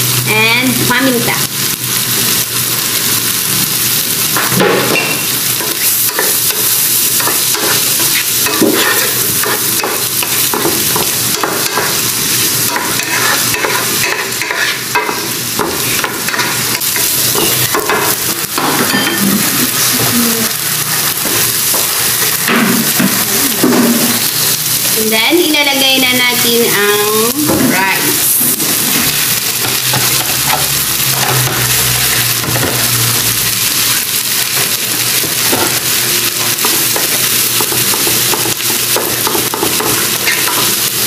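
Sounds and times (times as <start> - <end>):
food sizzling in hot oil: 0.0 - 41.0
spatula scraping pan: 7.2 - 11.9, 12.7 - 20.2.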